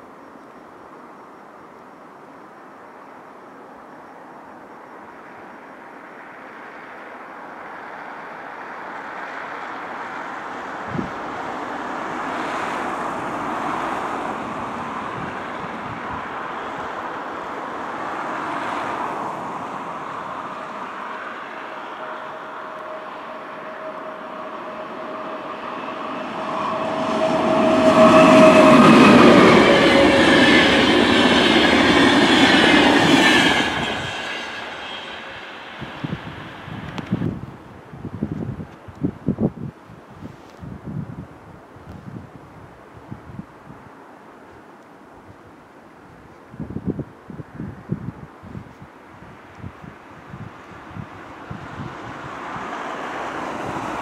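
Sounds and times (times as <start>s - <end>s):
passenger train passing: 6.0s - 39.5s, 47.4s - 54.0s
steady whine: 19.5s - 37.3s.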